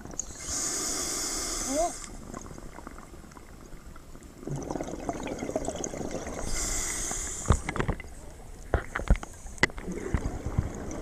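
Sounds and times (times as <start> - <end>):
regulator hiss: 0.3 - 2.2
exhaled bubbles gurgling: 1.9 - 11.0.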